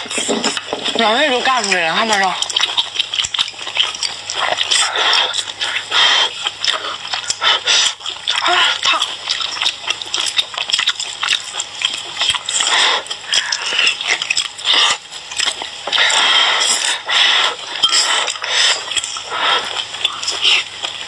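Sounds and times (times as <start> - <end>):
wet chewing and slurping: 0.0 - 21.0
sharp clicks while eating: 0.4 - 5.8, 6.6 - 17.0.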